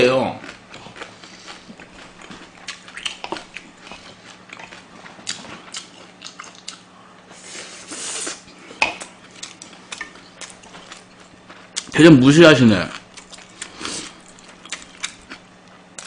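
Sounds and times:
wet chewing and lip smacks: 0.4 - 6.9, 9.0 - 12.0, 12.9 - 16.0.

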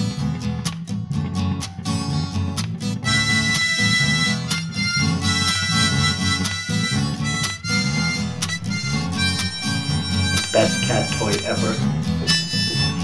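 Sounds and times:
acoustic guitar strumming: 0.0 - 13.0
harmonica held notes: 3.0 - 13.0.

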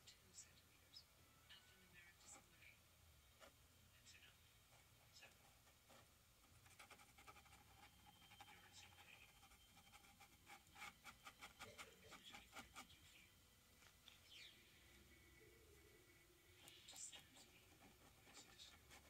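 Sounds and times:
paintbrush scratching on canvas: 4.7 - 13.0, 16.6 - 19.0.

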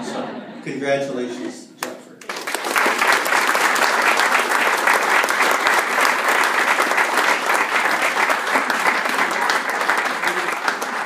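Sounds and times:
audience applauding: 2.2 - 11.0.

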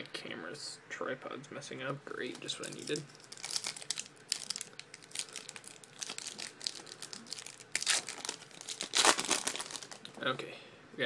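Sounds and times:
foil wrapper tearing and crinkling: 2.4 - 10.1.

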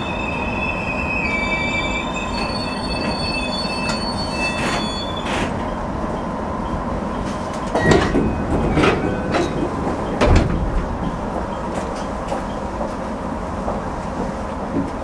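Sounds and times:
train equipment humming: 0.0 - 15.0
knocks and clunks: 7.3 - 12.5.

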